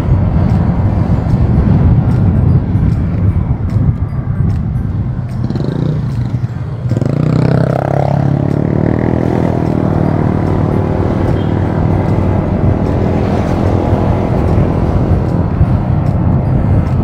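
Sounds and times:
wind rumble on microphone: 0.0s - 17.0s
motorcycle engine: 4.8s - 17.0s.

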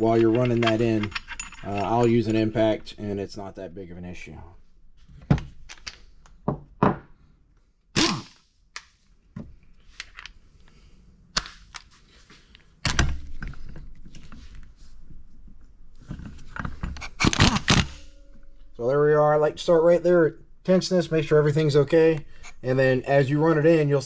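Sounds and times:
metal tools clinking: 0.0s - 3.2s.

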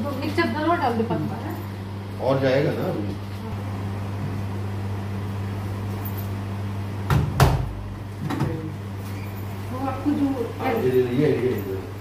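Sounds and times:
steady low hum: 0.0s - 12.0s
washing machine door thud: 7.1s - 8.6s.

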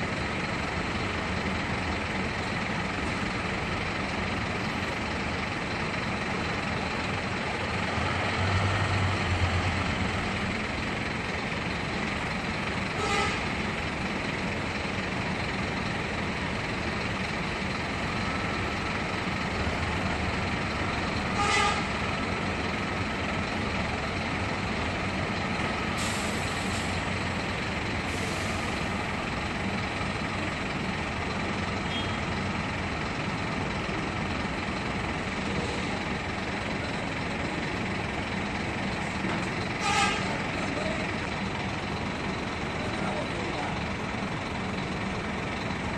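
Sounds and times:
bus diesel engine running: 0.0s - 45.9s
bus horn toots: 12.9s - 13.5s, 21.3s - 22.0s, 31.8s - 32.2s, 39.8s - 40.4s.

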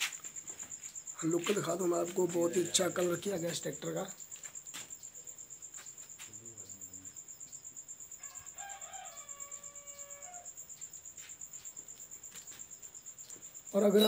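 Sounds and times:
crickets chirping: 0.0s - 14.0s
faint rooster crow: 8.2s - 10.8s.

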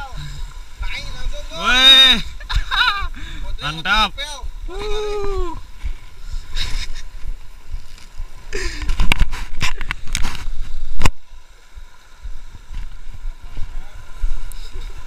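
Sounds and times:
sea surf washing against rocks: 0.0s - 15.0s
camera rubbing against clothing: 5.7s - 11.2s.

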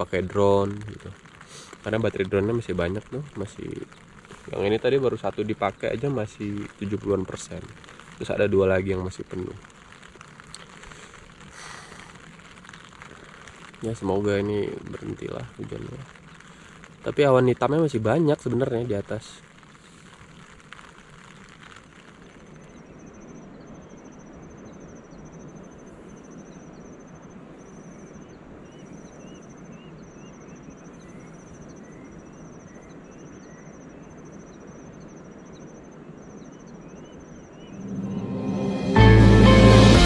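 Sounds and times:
insect chirping in trills: 0.0s - 39.0s
light rain hissing: 0.0s - 40.0s
music: 37.8s - 40.0s.

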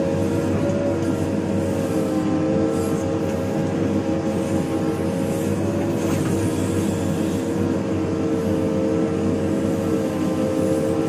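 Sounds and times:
diesel engine running under load: 0.0s - 11.0s.

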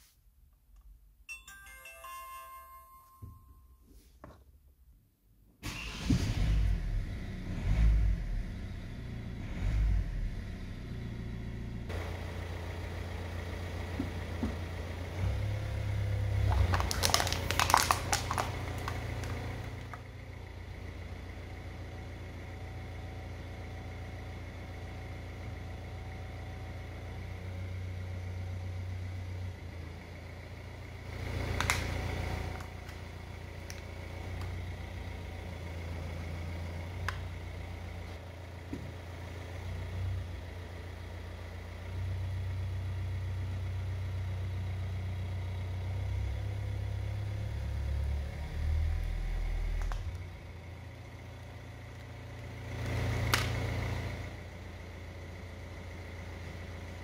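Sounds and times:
car engine rumbling: 5.8s - 57.0s
loud crackle: 16.4s - 20.0s.

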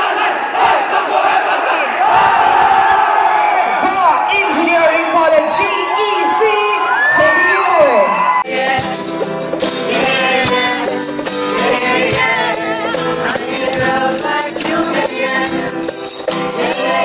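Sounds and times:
group of people singing: 8.4s - 17.0s
rhythmic percussion beat: 8.5s - 17.0s.

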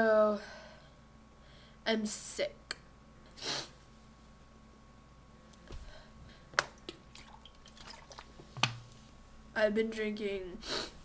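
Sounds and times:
faint liquid sounds: 6.8s - 8.5s.

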